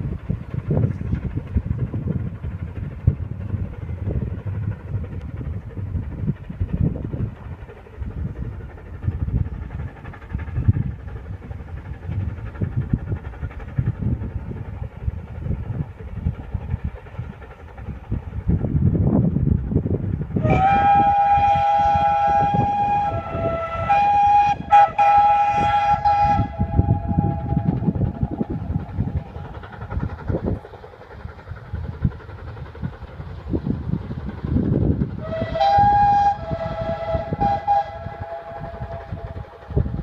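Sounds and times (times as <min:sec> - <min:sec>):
steam locomotive exhaust beats: 0:00.0 - 0:40.0
steam whistle blast: 0:20.4 - 0:28.6, 0:35.2 - 0:39.4.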